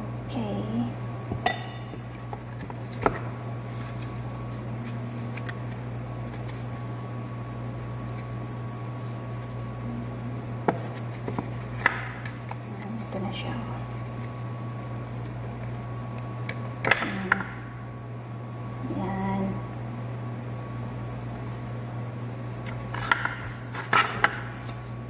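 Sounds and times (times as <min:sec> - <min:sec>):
papery rustling: 0:02.1 - 0:09.7, 0:10.8 - 0:16.2.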